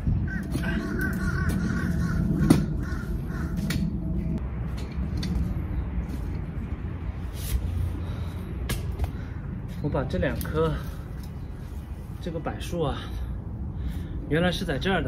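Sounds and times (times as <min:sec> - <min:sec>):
birds calling harshly: 0:00.2 - 0:04.4, 0:09.0 - 0:14.2.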